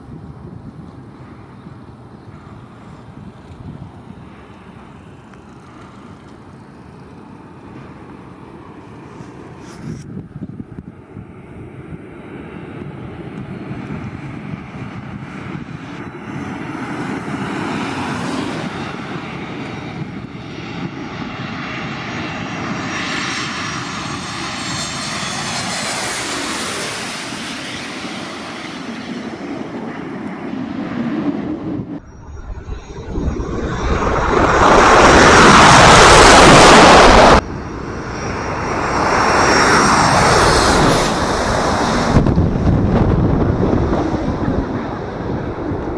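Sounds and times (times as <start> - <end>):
jet engines whining hum: 0.0 - 45.9
loud rush of jet noise: 24.0 - 45.9.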